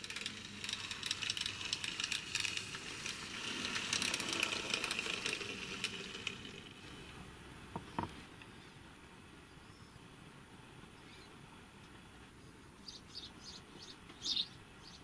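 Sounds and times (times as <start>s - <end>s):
mechanical whirr: 0.0s - 7.2s
model train wheels rattling: 0.0s - 8.1s.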